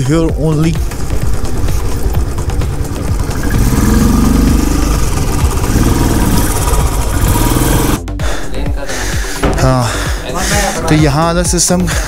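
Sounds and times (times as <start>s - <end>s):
motorcycle engine revving: 0.0s - 8.3s.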